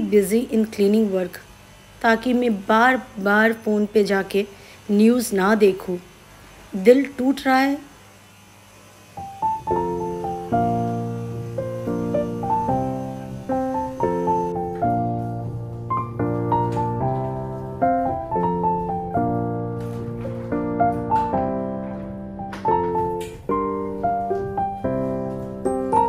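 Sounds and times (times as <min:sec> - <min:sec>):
gentle piano melody: 0:09.2 - 0:26.0.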